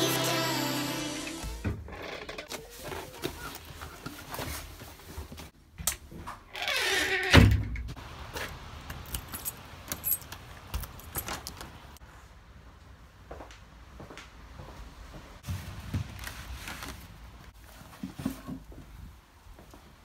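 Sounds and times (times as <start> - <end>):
keys jangling in a lock: 9.0 - 11.6.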